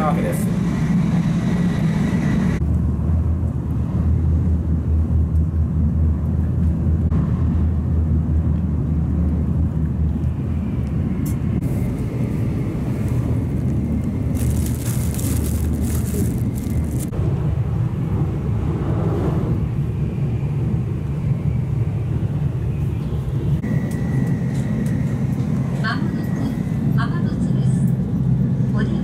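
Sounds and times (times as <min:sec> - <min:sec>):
train rumble inside cabin: 0:00.0 - 0:29.0
plastic food wrapping crinkling: 0:13.6 - 0:17.1.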